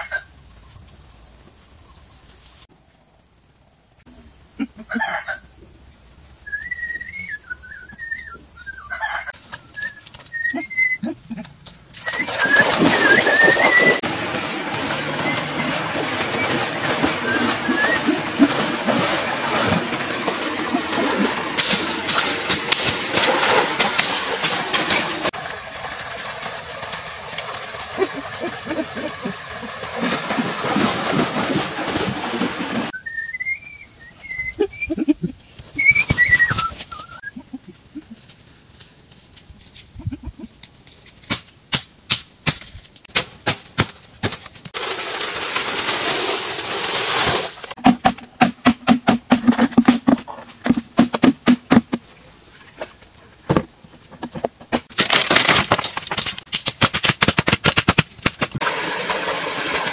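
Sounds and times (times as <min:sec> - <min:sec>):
bird whistled call: 0:06.4 - 0:09.0, 0:09.6 - 0:11.0, 0:12.0 - 0:14.0, 0:17.2 - 0:18.1, 0:32.9 - 0:34.9, 0:35.8 - 0:37.3
water splashing in a pool: 0:11.9 - 0:33.0, 0:44.7 - 0:52.7, 0:58.2 - 0:59.9
chopping strikes on bamboo: 0:41.2 - 0:44.5, 0:56.5 - 0:58.6
hollow knocks: 0:47.8 - 0:52.0.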